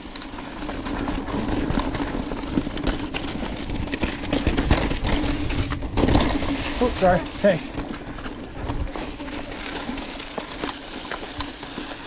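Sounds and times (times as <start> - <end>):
bike knocking and rattling: 0.0 - 12.0
bike tyres crunching over rock: 0.0 - 12.0
wind rumble on microphone: 0.9 - 7.2.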